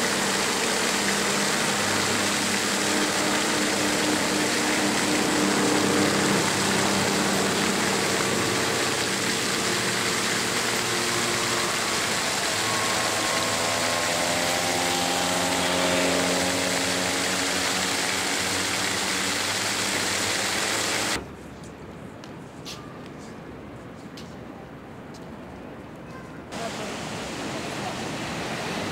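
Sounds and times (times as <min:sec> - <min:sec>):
loud rushing noise: 0:00.0 - 0:21.2
engine running: 0:00.0 - 0:21.3.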